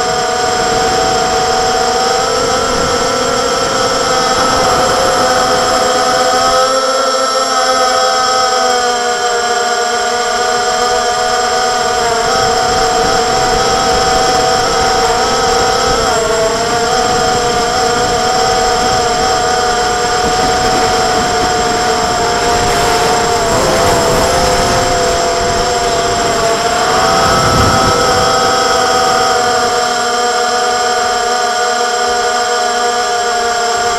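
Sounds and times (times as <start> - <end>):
drone propellers whining: 0.0 - 33.9
wind noise: 0.0 - 33.9.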